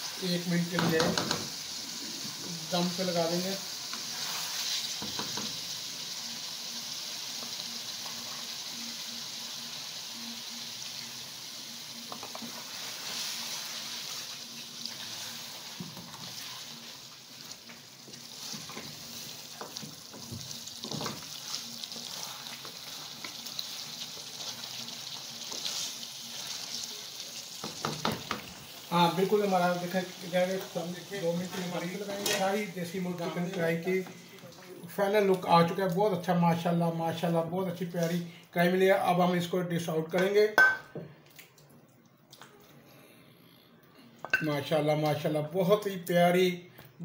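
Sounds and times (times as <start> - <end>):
chicken sizzling in a pan: 0.0 - 34.1
spatula scraping a pan: 3.9 - 5.0, 14.9 - 16.8.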